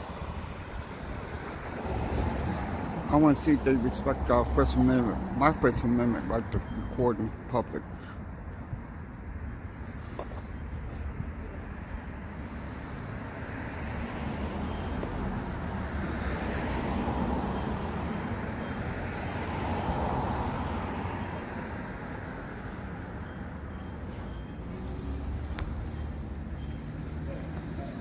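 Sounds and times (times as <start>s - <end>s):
cars passing on road: 0.0s - 28.0s.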